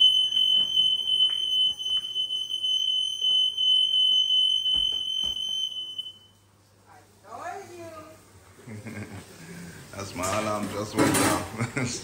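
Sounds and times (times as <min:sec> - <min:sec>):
smoke alarm tone: 0:00.0 - 0:06.4.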